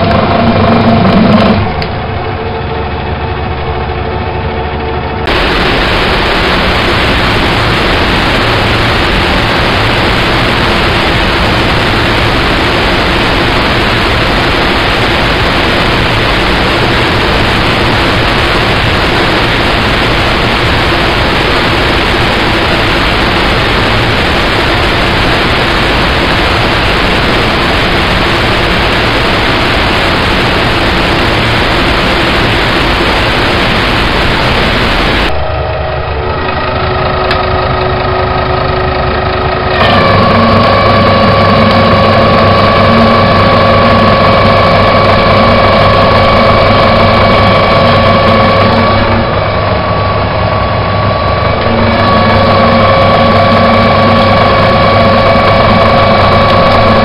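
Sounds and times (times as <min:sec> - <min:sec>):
lathe machine running: 0:00.0 - 0:57.0
faint steady hum: 0:05.2 - 0:39.7.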